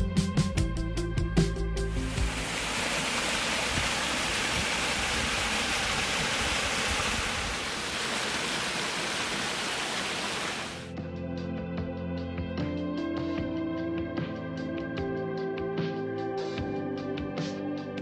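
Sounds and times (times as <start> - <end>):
background music: 0.0 - 2.8, 10.8 - 18.0
stream splashing over rocks: 1.9 - 10.8.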